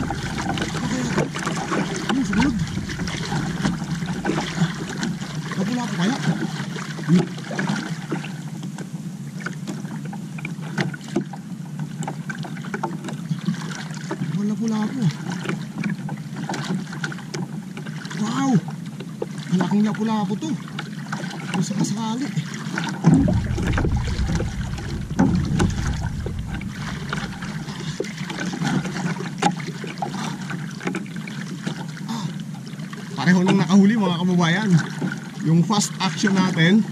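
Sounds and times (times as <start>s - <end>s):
wind rumble on microphone: 0.0s - 6.9s, 23.0s - 28.9s
water sloshing against hull: 0.0s - 36.9s.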